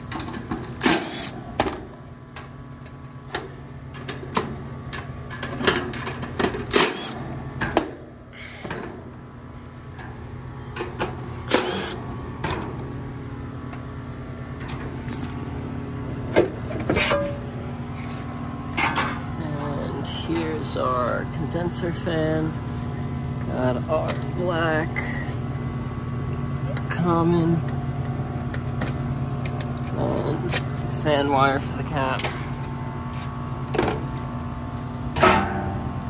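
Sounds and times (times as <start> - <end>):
steady low hum: 0.0 - 36.0
impact driver bursts: 6.7 - 7.2, 11.5 - 12.0.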